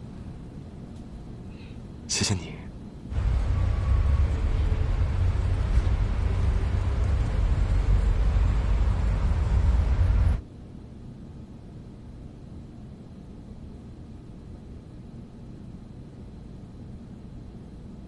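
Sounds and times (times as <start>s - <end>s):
passing cars rumble: 3.1s - 10.4s.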